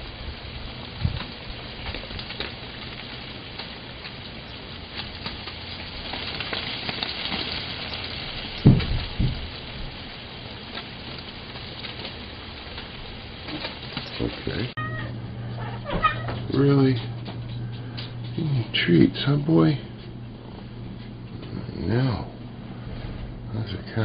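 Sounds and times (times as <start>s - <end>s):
dull thumps: 8.6s - 9.5s.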